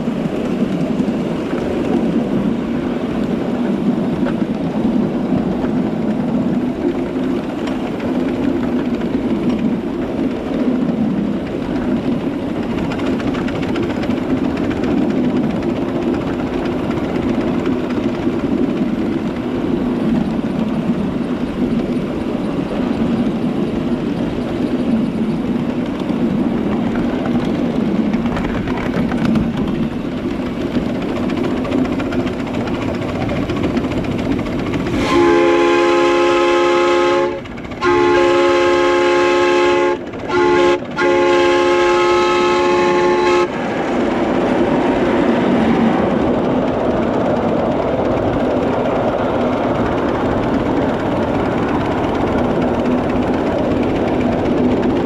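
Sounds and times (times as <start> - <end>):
wheels clattering on rail: 0.0 - 55.0
steam whistle blasts: 35.0 - 43.5.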